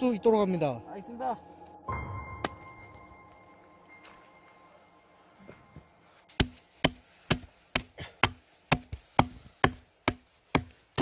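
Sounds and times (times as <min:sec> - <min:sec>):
hatchet chopping tree stump: 0:06.3 - 0:11.0.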